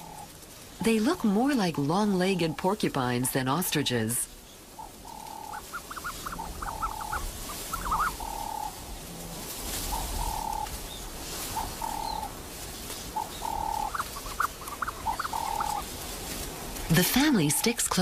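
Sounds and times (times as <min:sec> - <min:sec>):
ostrich chicks peeping: 0:02.3 - 0:09.0, 0:09.6 - 0:18.0.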